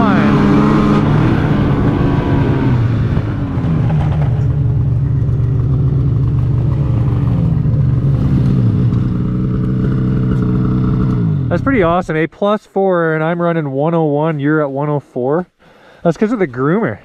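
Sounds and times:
snowmobile engine slowing to idle: 2.8 - 12.2.

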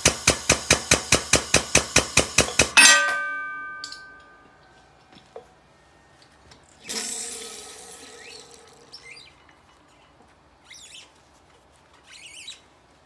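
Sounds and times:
metallic bang of press: 2.7 - 4.4
short high squeaks: 8.2 - 11.4, 12.0 - 12.7.

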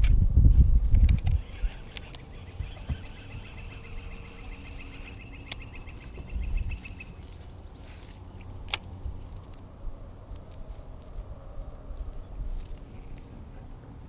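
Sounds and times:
sharp clicks: 0.9 - 9.5
bird trilling: 1.4 - 8.2.

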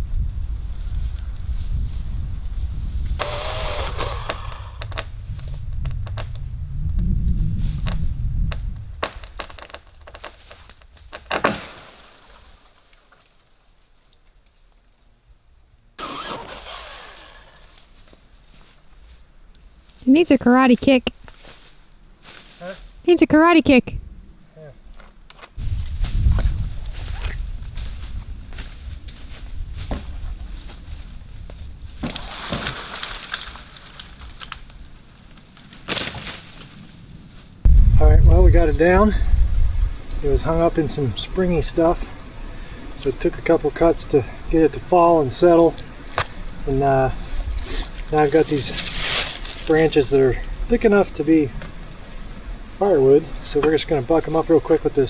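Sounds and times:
branches crackling and snapping: 0.1 - 23.0, 24.9 - 43.6, 44.8 - 55.0
loud wood crack: 3.1 - 6.5, 7.8 - 15.0, 16.0 - 18.2, 31.9 - 36.8, 47.3 - 50.8
electric pole saw running: 3.2 - 4.9, 16.0 - 17.8
wood cracking and knocking: 7.8 - 13.4, 32.0 - 34.8.

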